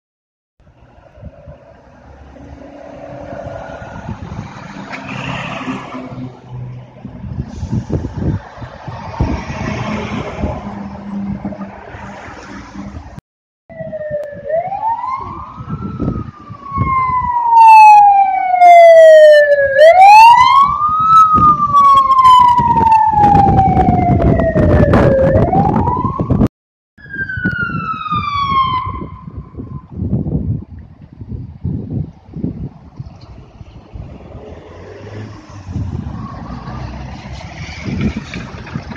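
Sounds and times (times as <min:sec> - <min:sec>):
road noise: 0:00.6 - 0:38.9
fire engine siren wailing: 0:13.7 - 0:30.0
vehicle engines running: 0:33.0 - 0:38.9.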